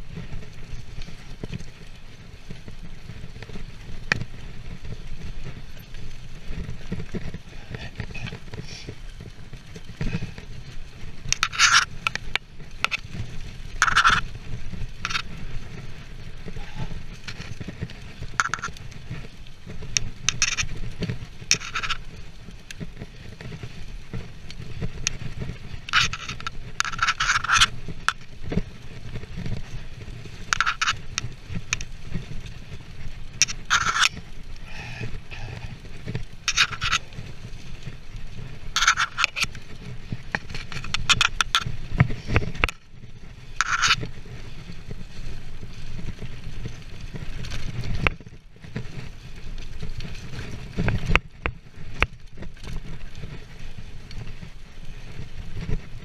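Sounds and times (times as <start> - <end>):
bike tyres rattling over leaves: 0.0 - 56.0
wind rumble on microphone: 0.0 - 56.0.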